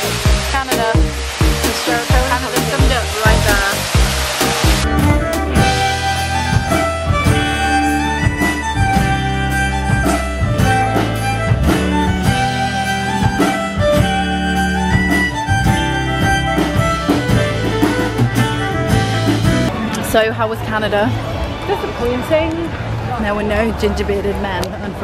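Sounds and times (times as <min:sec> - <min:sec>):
drum beat: 0:00.0 - 0:19.7
acoustic guitar: 0:00.0 - 0:20.7
fiddles: 0:04.9 - 0:19.7.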